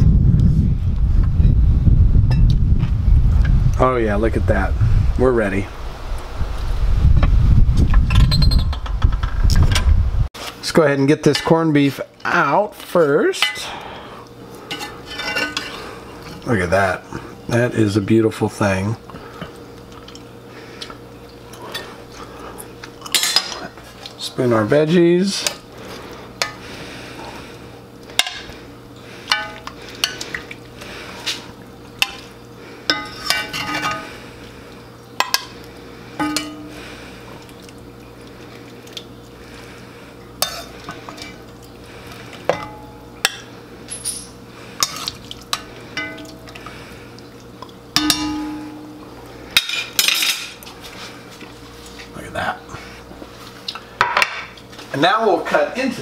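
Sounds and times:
metal spoon clinking in pot: 0:32.9 - 0:34.0, 0:36.2 - 0:36.7, 0:42.5 - 0:45.0, 0:46.0 - 0:46.4, 0:48.0 - 0:49.0.

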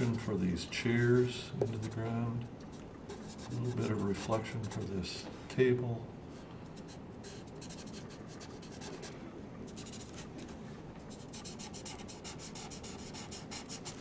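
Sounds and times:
marker rubbing on paper: 0:00.0 - 0:00.3, 0:03.1 - 0:04.9, 0:06.8 - 0:09.1, 0:09.7 - 0:10.3, 0:11.1 - 0:14.0.

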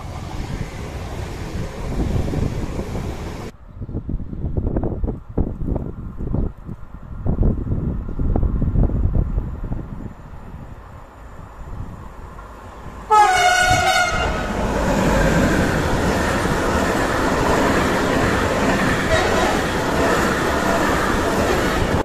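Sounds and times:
freight train rumbling past: 0:00.0 - 0:06.2, 0:07.0 - 0:22.0
locomotive horn blast: 0:13.1 - 0:14.6, 0:19.0 - 0:19.8.

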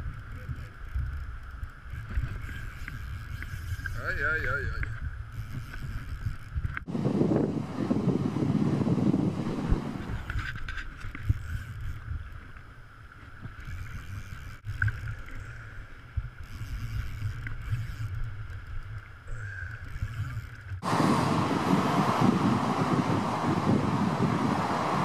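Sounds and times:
wind on microphone: 0:00.0 - 0:12.5, 0:13.4 - 0:25.0
muffled rumble of wind and river: 0:00.0 - 0:25.0
fast river rushing: 0:20.8 - 0:25.0.

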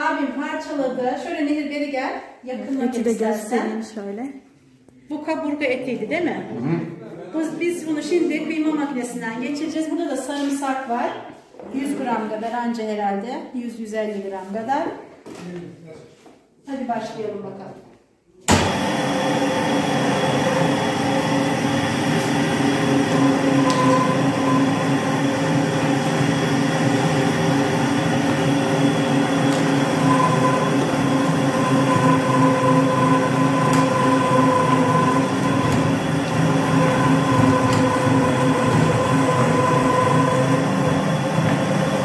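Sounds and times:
meat grinder motor hum: 0:18.5 - 0:42.0.

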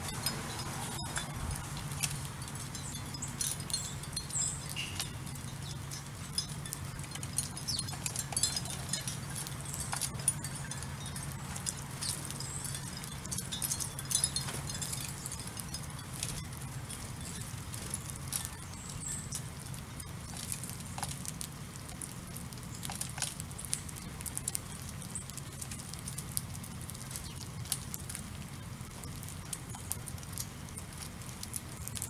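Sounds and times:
birds pecking seed on asphalt: 0:00.0 - 0:32.0
steady low hum: 0:00.0 - 0:32.0
short high bird chirps: 0:03.9 - 0:05.2.

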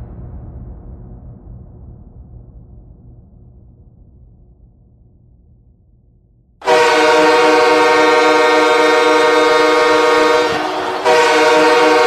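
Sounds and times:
goal horn blast: 0:06.6 - 0:12.0.

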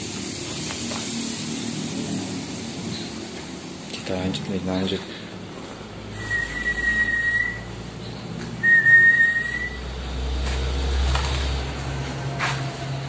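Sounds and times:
long high whistled notes: 0:06.1 - 0:07.7, 0:08.6 - 0:09.9.

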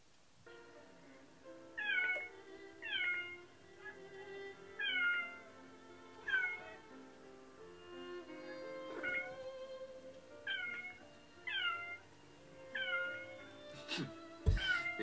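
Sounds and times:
soft background music: 0:00.3 - 0:15.0
cat meowing: 0:01.8 - 0:05.6, 0:06.2 - 0:07.0, 0:07.9 - 0:13.5, 0:14.5 - 0:15.0.

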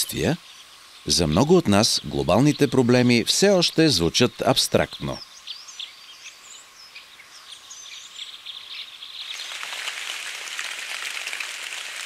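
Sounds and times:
birds chirping and singing: 0:00.0 - 0:09.5
rain falling through forest: 0:05.0 - 0:12.0.

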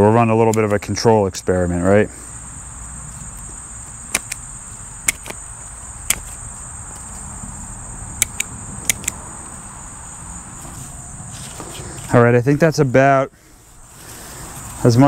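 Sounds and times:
insects droning: 0:00.0 - 0:15.0
pruning shears snipping: 0:04.1 - 0:05.4, 0:06.0 - 0:06.4, 0:08.2 - 0:09.2.

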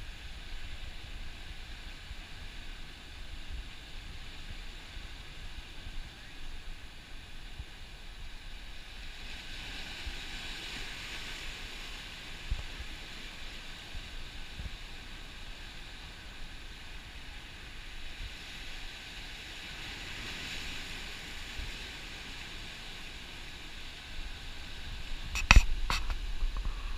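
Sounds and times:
wind buffeting microphone: 0:24.3 - 0:26.9.

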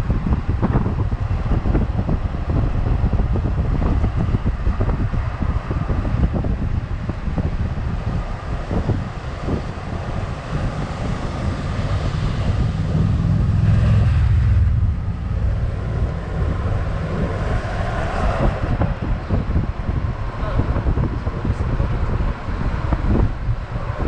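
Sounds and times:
vehicle engine and road noise: 0:00.0 - 0:24.0
wind buffeting microphone: 0:00.0 - 0:24.0.

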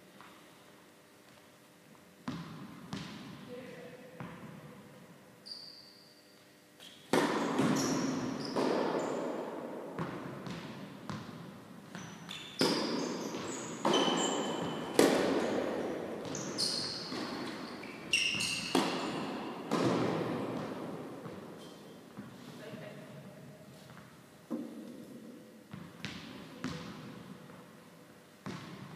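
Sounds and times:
shoe squeaks: 0:05.4 - 0:09.3, 0:11.9 - 0:19.7, 0:21.3 - 0:22.1
racket striking tennis ball: 0:06.9 - 0:21.6
ball bounces: 0:07.1 - 0:09.4, 0:10.0 - 0:21.5, 0:25.7 - 0:27.1, 0:28.4 - 0:28.9.

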